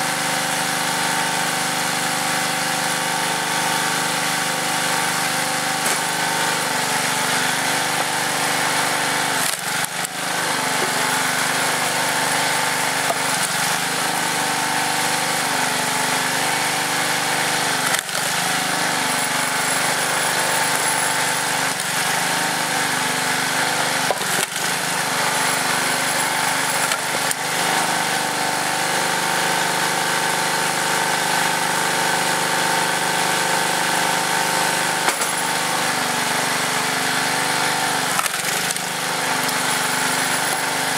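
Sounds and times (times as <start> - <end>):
small engine running: 0.0 - 40.9
wood cracking as it splits: 9.0 - 11.5, 12.2 - 13.9, 17.7 - 18.5, 24.0 - 24.9, 38.1 - 39.6.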